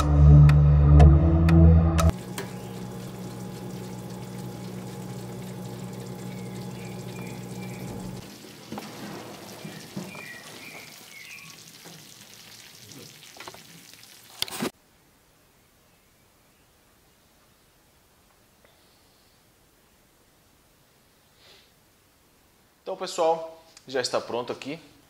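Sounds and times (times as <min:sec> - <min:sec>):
oven low hum: 0:02.0 - 0:08.3
gratin bubbling and sizzling: 0:02.1 - 0:14.8.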